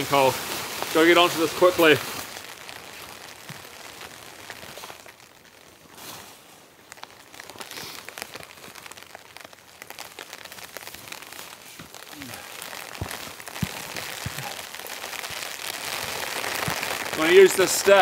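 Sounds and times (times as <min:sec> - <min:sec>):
light rain falling: 0:00.0 - 0:18.0
tarp rustling: 0:00.0 - 0:18.0.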